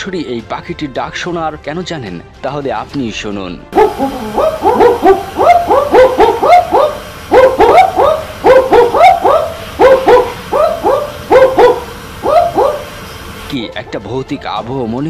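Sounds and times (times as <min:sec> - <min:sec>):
owls barking: 0:03.8 - 0:14.5.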